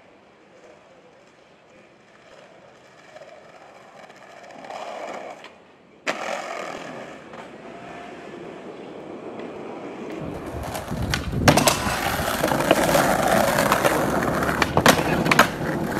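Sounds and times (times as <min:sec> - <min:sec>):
skateboard wheels rolling on pavement: 0:00.0 - 0:15.9
skateboard landing clack: 0:09.4 - 0:15.9.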